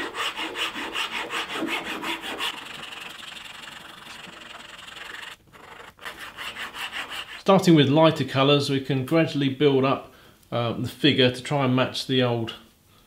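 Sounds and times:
file rasping on wood: 0.0s - 7.4s.

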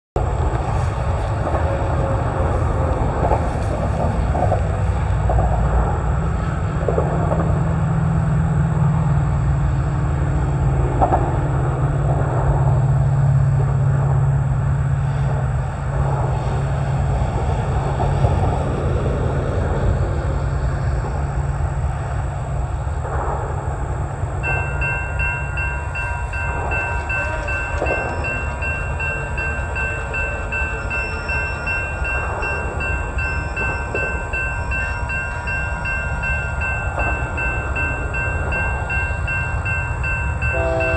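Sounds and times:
wind rumbling on microphone: 0.2s - 40.9s
railroad crossing bell ringing: 24.4s - 40.9s.

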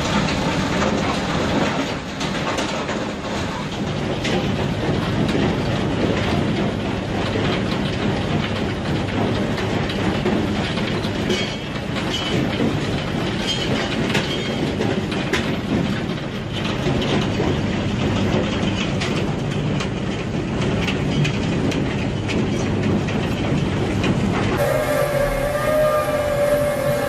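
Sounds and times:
shredding machine grinding: 24.6s - 27.0s
steady pitched whine: 24.6s - 27.0s.

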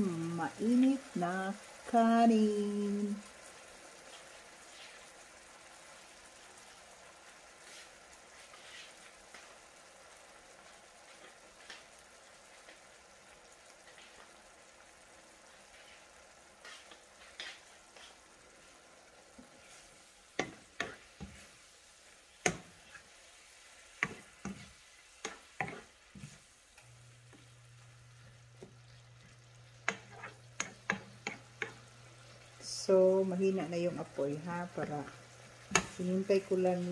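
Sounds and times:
food sizzling in frying pan: 0.0s - 36.9s
spoon scraping pan: 7.6s - 9.6s, 11.0s - 12.0s, 15.5s - 26.5s, 28.2s - 32.5s, 34.8s - 36.9s.

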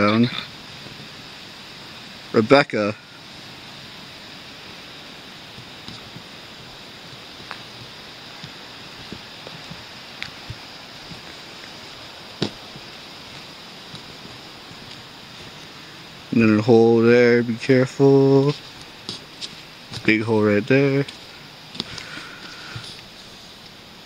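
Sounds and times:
steady hiss: 0.0s - 24.0s
footsteps on gritty stone: 5.6s - 15.8s, 18.4s - 20.3s, 21.0s - 23.1s.

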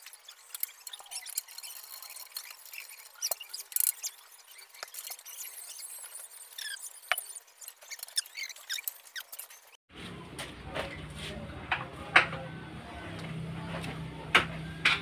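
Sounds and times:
metal rubbing squeaks: 0.0s - 9.8s.

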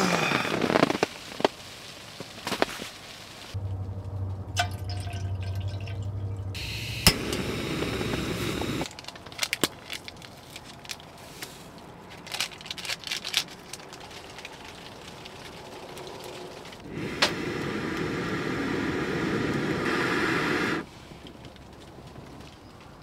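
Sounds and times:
water pouring into pot: 4.6s - 6.2s.

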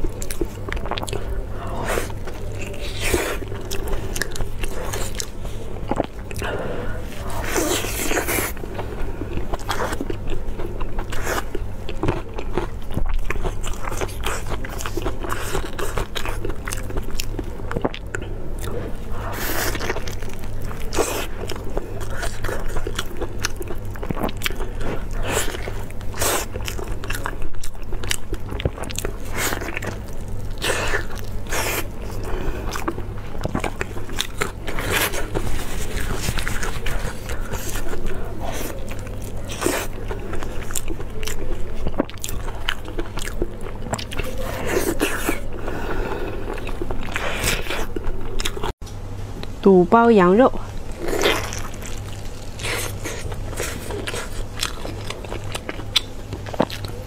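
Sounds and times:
close-miked chewing: 0.0s - 48.8s, 50.4s - 57.0s
steady low hum: 0.0s - 57.0s
wet tearing and crackling: 19.0s - 45.6s, 50.7s - 57.0s.

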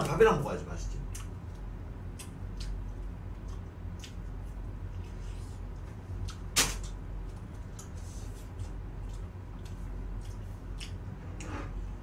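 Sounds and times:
steady low hum: 0.0s - 12.0s
crunching and chewing: 1.1s - 11.8s.

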